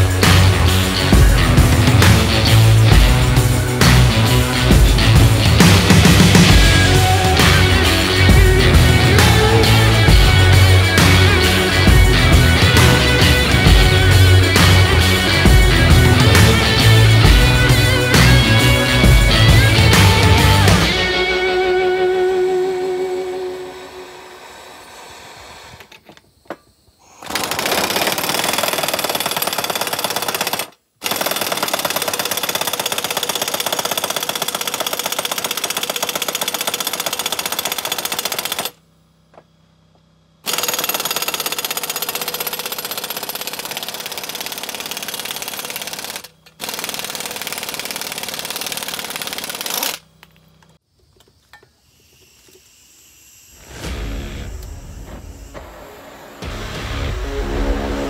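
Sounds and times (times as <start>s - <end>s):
impact wrench hammering: 40.4s - 50.3s.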